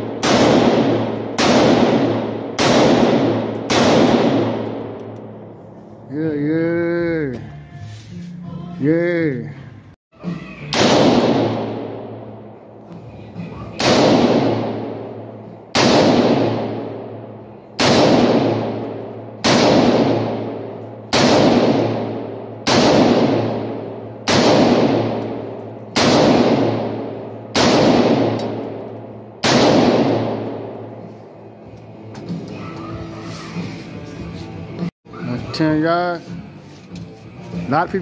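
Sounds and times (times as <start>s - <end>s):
rifle shots ringing indoors: 0.0s - 5.7s, 10.7s - 12.7s, 13.8s - 31.2s.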